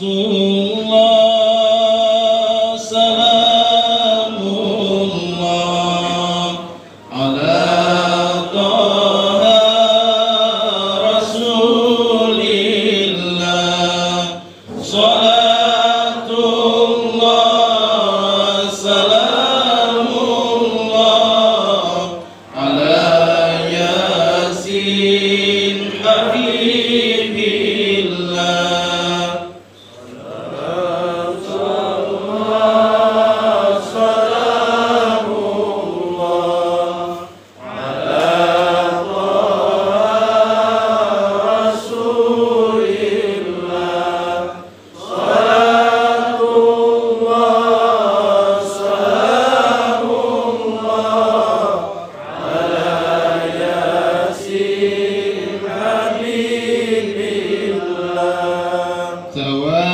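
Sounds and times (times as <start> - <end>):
man chanting into a microphone: 0.0 - 29.5, 58.6 - 59.9.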